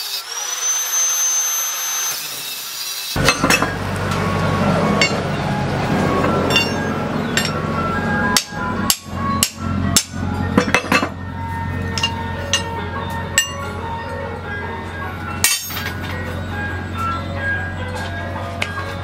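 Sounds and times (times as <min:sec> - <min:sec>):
steel ring clinking against post: 0:03.2 - 0:03.8, 0:06.5 - 0:07.6, 0:11.9 - 0:12.8, 0:13.4 - 0:13.7, 0:15.4 - 0:16.2
background music: 0:03.3 - 0:19.0.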